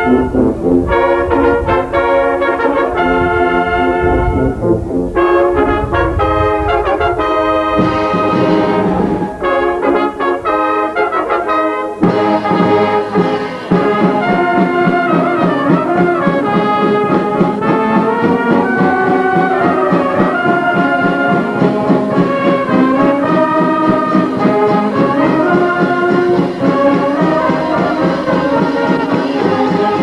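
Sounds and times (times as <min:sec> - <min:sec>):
trumpets playing melody: 0:00.0 - 0:30.0
tubas: 0:00.0 - 0:30.0
drums and cymbals beat: 0:07.8 - 0:10.1, 0:12.0 - 0:30.0.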